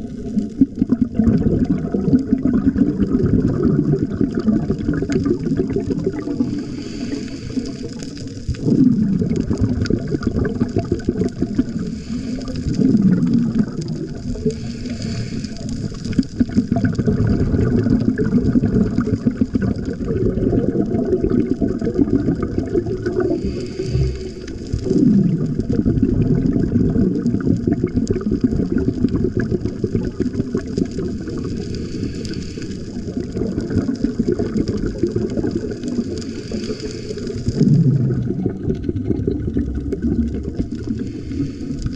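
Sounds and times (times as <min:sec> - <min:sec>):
exhaled air bubbling: 0:00.0 - 0:41.9
regulator breathing hiss: 0:06.4 - 0:08.5, 0:11.7 - 0:12.9, 0:14.4 - 0:16.0, 0:23.2 - 0:24.9, 0:31.5 - 0:33.2, 0:36.0 - 0:37.6, 0:40.8 - 0:41.9.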